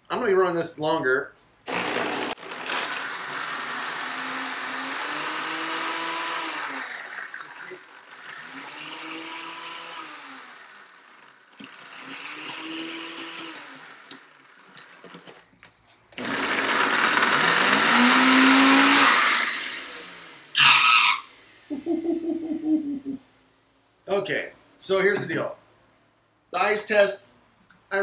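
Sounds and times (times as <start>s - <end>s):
blender jar rasp: 1.7s - 15.5s, 16.2s - 21.7s
blender crushing ice: 1.7s - 21.3s.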